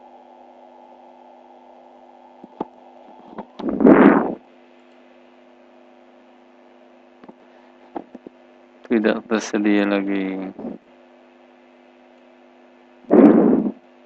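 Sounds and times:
low electrical hum: 0.0 - 14.0
short loud rush of noise: 3.6 - 4.4, 13.1 - 13.8.

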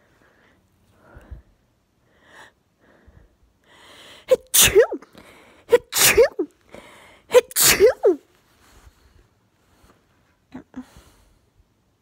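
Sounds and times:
drawn-in breath: 0.0 - 4.3
woman sneezing: 4.3 - 5.1, 5.7 - 6.5, 7.3 - 8.2.

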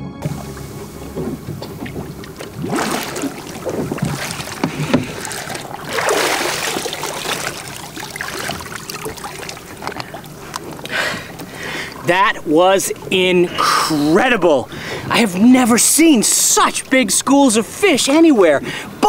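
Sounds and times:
water splashing and sloshing: 0.2 - 19.0.

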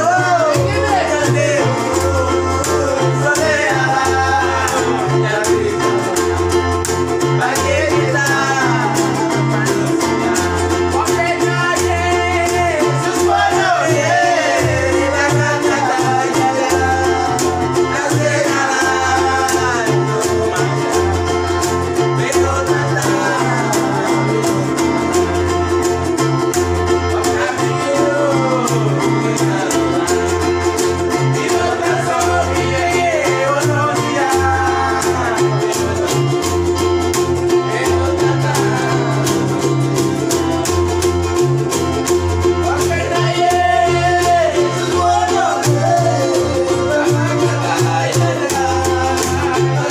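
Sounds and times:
keyboard: 0.0 - 49.9
men singing together: 0.0 - 49.9
plucked string bass: 0.0 - 49.9
strummed guitars: 0.0 - 49.9.

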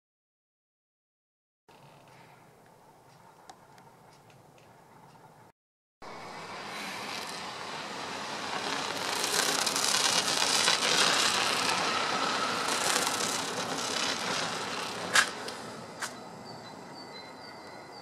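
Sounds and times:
vehicle passing: 6.1 - 16.3.

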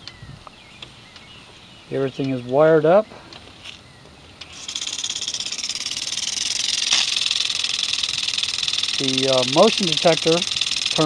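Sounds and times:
sprinkler spraying and rattling: 4.4 - 11.0.

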